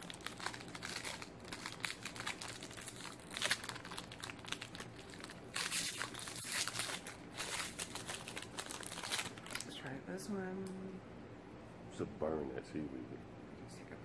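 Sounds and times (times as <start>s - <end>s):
candy wrapper crinkling: 0.0s - 9.7s.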